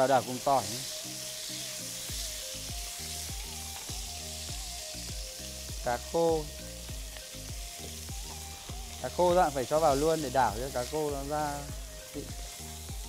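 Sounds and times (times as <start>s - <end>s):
person speaking: 0.0s - 0.9s, 5.8s - 6.6s, 9.0s - 12.4s
background music with low beat: 0.0s - 13.0s
meat sizzling in oil: 0.0s - 13.0s.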